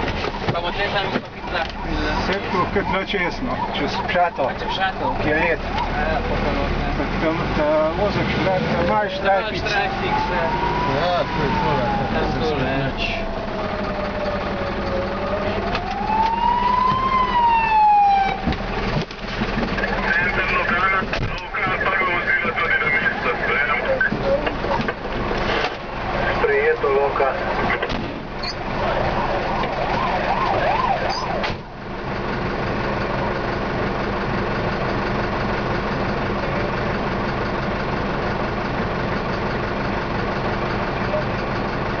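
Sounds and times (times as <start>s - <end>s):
fire engine siren wailing: 0.1s - 25.2s, 26.0s - 39.2s
siren wailing: 0.4s - 6.3s, 8.6s - 18.6s, 28.4s - 31.7s.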